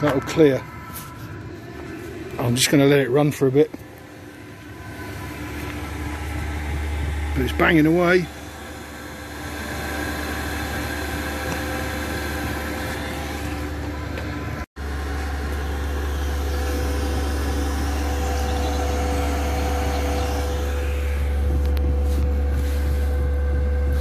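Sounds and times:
deep low rumble: 0:00.0 - 0:08.9, 0:16.1 - 0:24.0
heater fan whir: 0:00.0 - 0:24.0.

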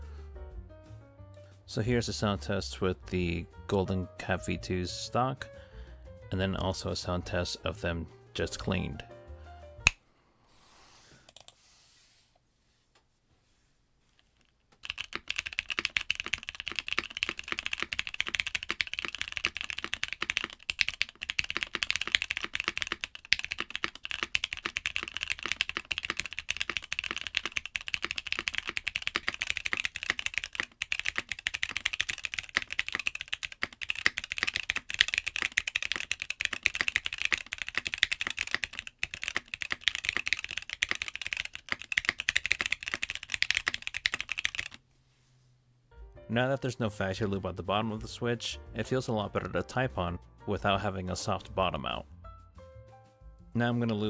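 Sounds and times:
mechanical keyboard typing: 0:14.8 - 0:44.8.

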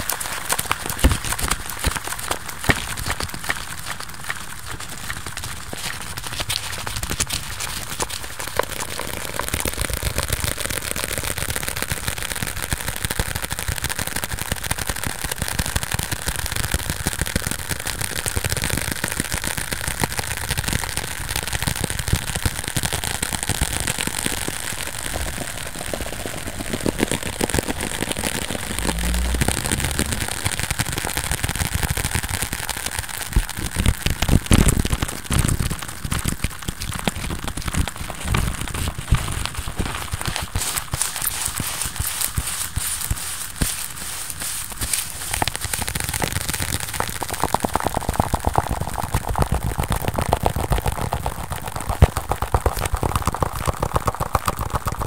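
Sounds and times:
low thumps: 0:27.7 - 0:31.7.

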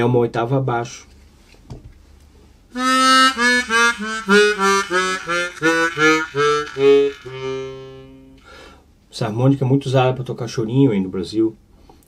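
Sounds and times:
harmonica playing quick notes: 0:02.8 - 0:08.4.

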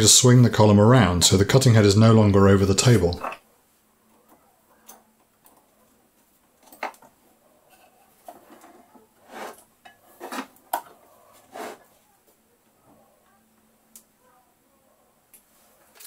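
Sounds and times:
metal scrapes: 0:07.7 - 0:11.9.

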